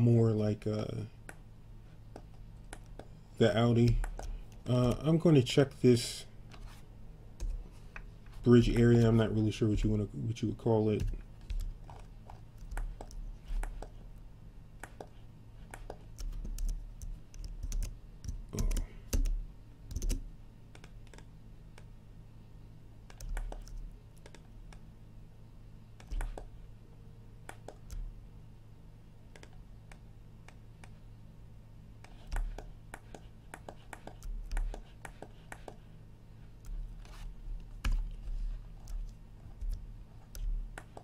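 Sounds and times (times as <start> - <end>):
steady low hum: 0.0 - 41.0
keyboard and mouse clicking: 15.7 - 21.9, 23.1 - 24.8, 27.4 - 28.1, 29.3 - 31.0.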